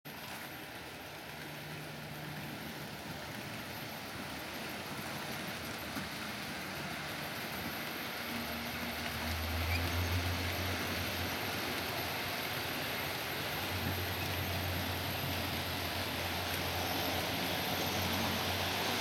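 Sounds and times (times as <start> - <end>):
model train wheels and motor: 0.1 - 19.0.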